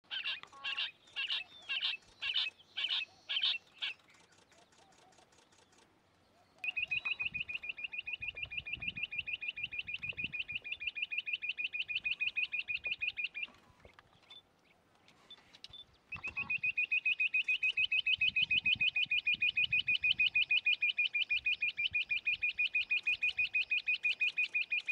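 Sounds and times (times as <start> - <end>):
quail calling loud notes: 0.1 - 4.0, 6.6 - 13.8, 16.1 - 24.9
faint high chirps: 6.6 - 14.5.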